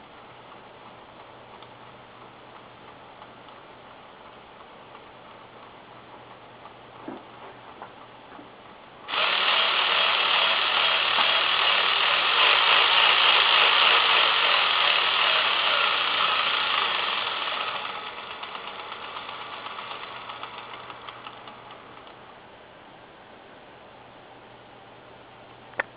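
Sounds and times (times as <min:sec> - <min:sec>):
printer ticking: 0:14.8 - 0:22.2.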